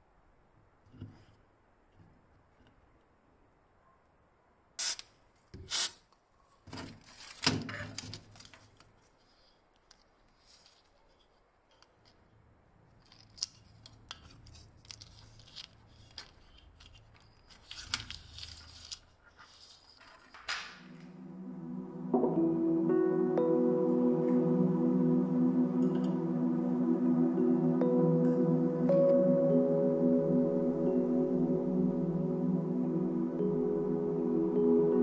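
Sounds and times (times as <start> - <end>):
crackling and rustling of plastic strip: 6.6 - 12.2, 13.0 - 20.8.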